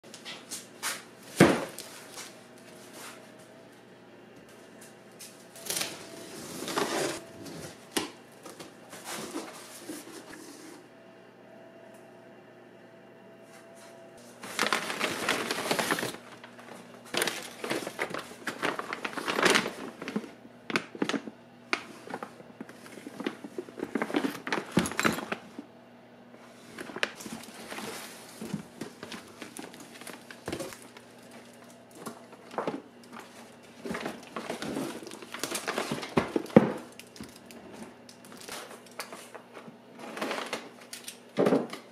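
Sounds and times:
packing paper rustling: 0:05.5 - 0:10.6, 0:14.2 - 0:25.5, 0:26.7 - 0:39.4
plastic wrap crinkling: 0:14.2 - 0:25.4, 0:26.8 - 0:39.4.

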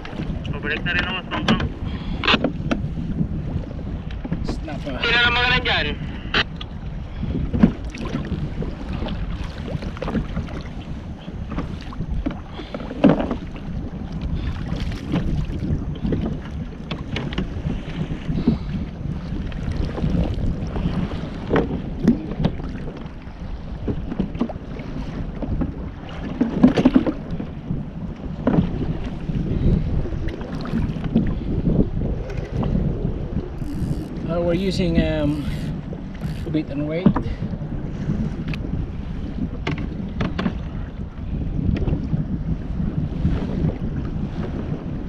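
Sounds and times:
choppy water against kayak: 0:00.0 - 0:45.0
wind on microphone: 0:00.0 - 0:45.0.

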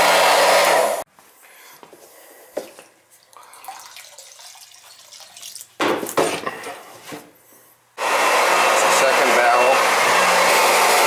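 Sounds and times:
oil splashing and trickling: 0:03.2 - 0:05.8
loud steady whirring: 0:08.0 - 0:11.0.

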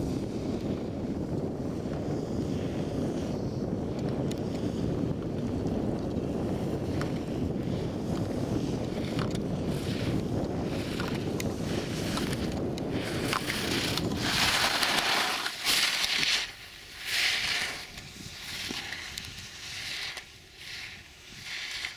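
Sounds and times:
wind buffeting microphone: 0:00.0 - 0:20.1
skis carving on snow: 0:00.0 - 0:21.9.

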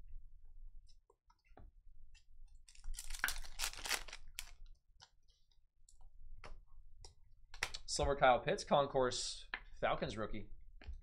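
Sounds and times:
cards clicking and rustling: 0:02.7 - 0:04.5
foil wrapper ripping: 0:02.7 - 0:04.6.

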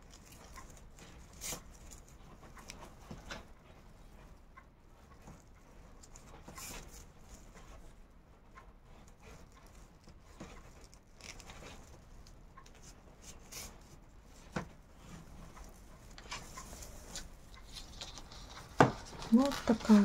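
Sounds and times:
paper yarn rustling: 0:15.0 - 0:20.0.

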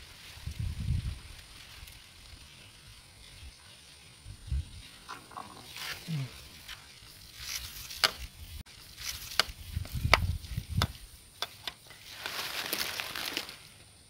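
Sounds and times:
fishing pole clicks and rustles: 0:05.0 - 0:13.8.

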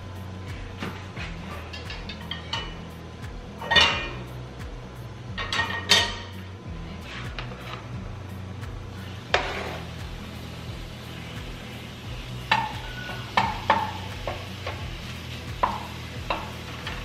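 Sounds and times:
chicken sizzling in a frying pan: 0:08.9 - 0:17.0
spatula scraping and knocking pan: 0:09.3 - 0:09.9, 0:12.4 - 0:17.0.

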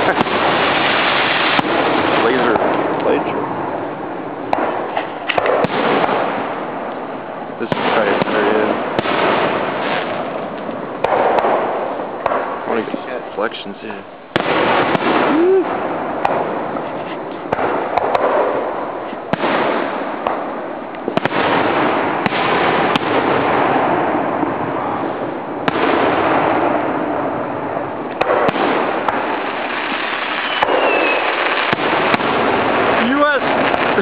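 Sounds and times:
firework shells bursting: 0:00.0 - 0:34.0
fireworks crackling: 0:00.0 - 0:34.0.

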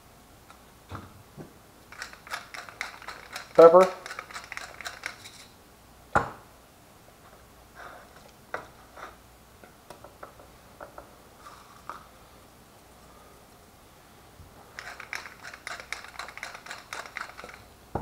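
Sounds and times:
pepper mill grinding clicks: 0:01.9 - 0:05.5, 0:14.8 - 0:17.7
fingers tapping and rubbing fish: 0:14.8 - 0:17.6.

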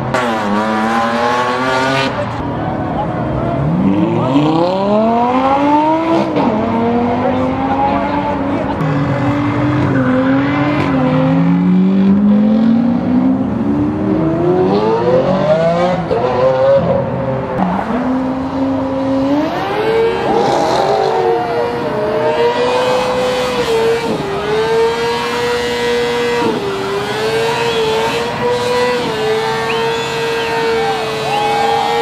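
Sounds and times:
sports car engines accelerating: 0:00.0 - 0:32.0
engine held at high revs: 0:17.6 - 0:32.0.

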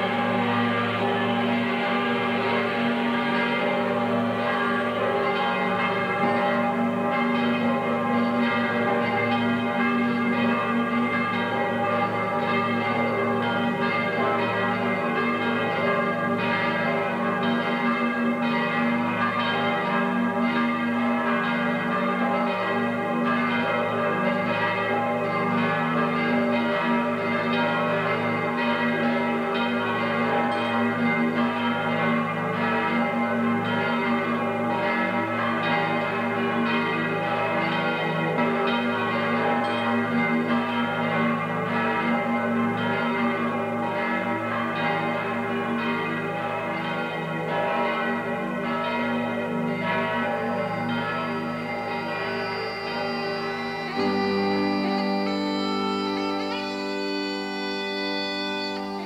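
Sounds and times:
church bells pealing: 0:00.0 - 0:59.0.

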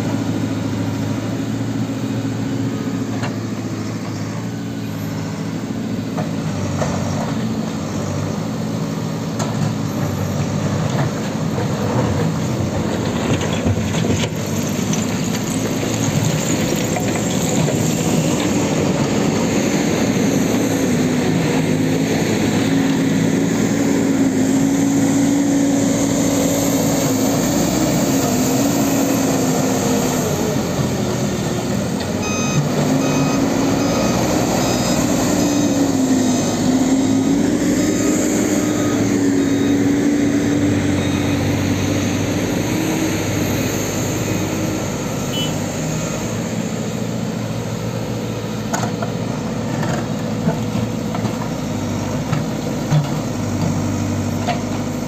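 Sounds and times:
diesel engines working: 0:00.0 - 0:55.0
reversing alarm beeping: 0:32.2 - 0:35.8, 0:44.5 - 0:46.4.

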